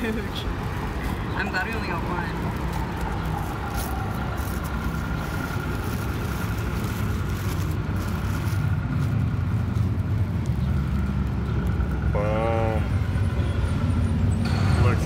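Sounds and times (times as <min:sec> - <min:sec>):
paper and foil wrapping rustling: 0:00.0 - 0:12.0
street traffic rumble: 0:00.0 - 0:15.0.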